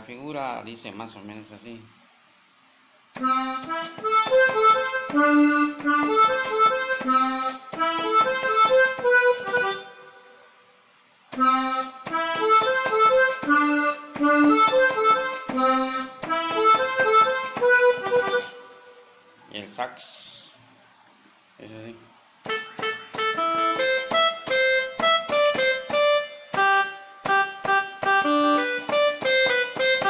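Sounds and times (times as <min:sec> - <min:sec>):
electronic keyboard cumbia melody: 0:03.2 - 0:10.6, 0:11.3 - 0:19.4, 0:22.4 - 0:30.0.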